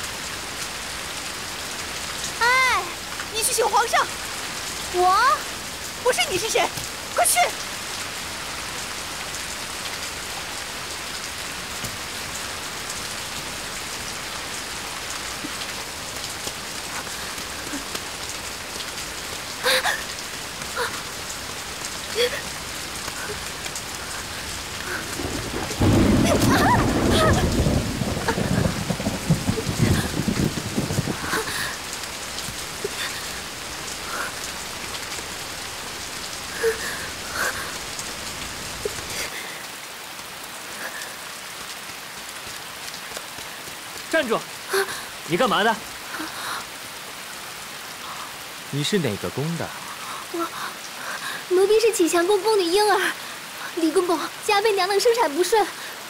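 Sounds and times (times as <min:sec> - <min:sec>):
heavy rain falling: 0:00.0 - 0:56.0
thunder rumbling: 0:22.1 - 0:34.8.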